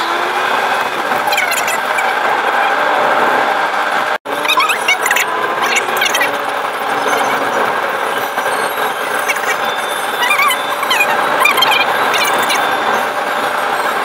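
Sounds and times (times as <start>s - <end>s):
car engine and road noise: 0.0s - 14.0s
high squeaks and chirps: 4.4s - 14.0s.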